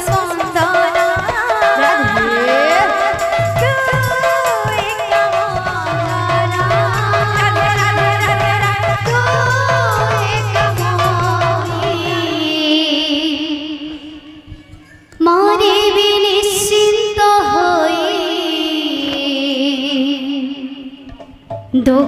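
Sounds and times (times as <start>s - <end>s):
drum rhythm: 0.0s - 13.5s
woman singing long wavering notes: 0.0s - 14.5s.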